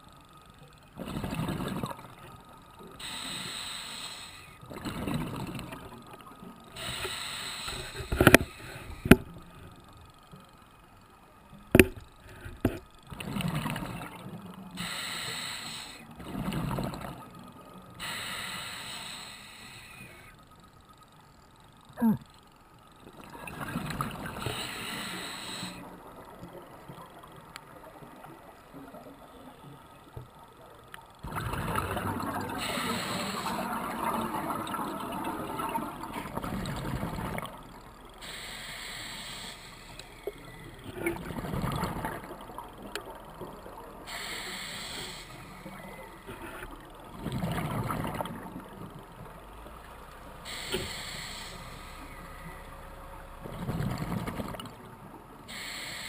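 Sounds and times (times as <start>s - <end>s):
regulator hiss on inhale: 3.0s - 4.6s, 6.8s - 9.2s, 14.8s - 16.2s, 17.9s - 20.4s, 24.4s - 25.9s, 32.6s - 33.7s, 38.2s - 40.7s, 44.1s - 46.3s, 50.5s - 52.6s, 55.5s - 56.0s
bubbles rushing on exhale: 31.2s - 37.6s, 47.1s - 48.8s.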